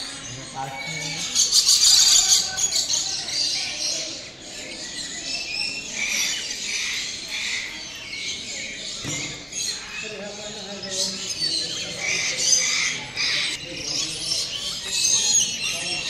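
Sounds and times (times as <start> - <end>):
birds chirping and twittering: 0.0 - 16.0.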